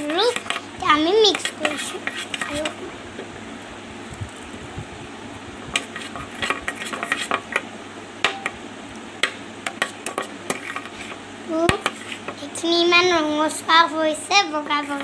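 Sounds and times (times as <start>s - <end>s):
spoon stirring liquid in bowl: 0.0s - 2.8s, 5.7s - 7.6s, 9.7s - 12.4s.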